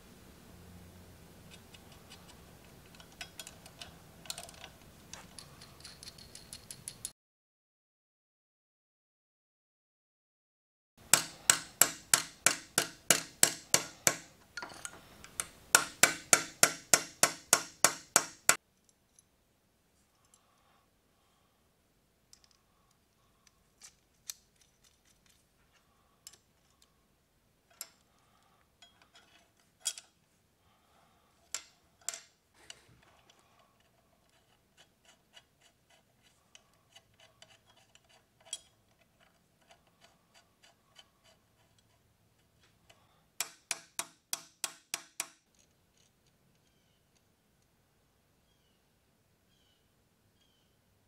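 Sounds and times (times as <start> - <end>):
metal tools clicking and clinking: 2.8 - 7.1, 13.1 - 16.0, 23.4 - 25.5, 27.7 - 28.0, 28.8 - 30.2, 36.5 - 40.4.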